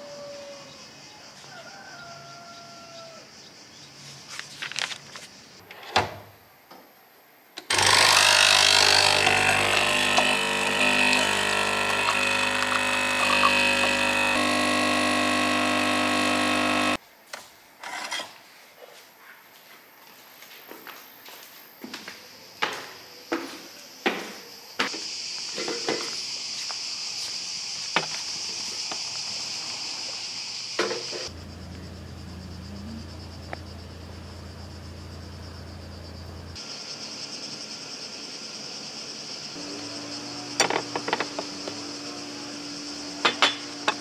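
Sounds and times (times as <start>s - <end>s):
cicadas buzzing: 0.0s - 5.6s, 7.6s - 17.0s, 21.2s - 44.0s
low steady rumble: 31.3s - 36.6s.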